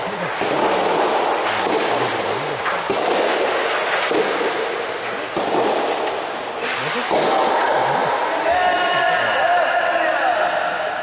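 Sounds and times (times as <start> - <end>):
reverberant hall noise: 0.0 - 11.0
tennis balls popping and bouncing: 0.1 - 4.7.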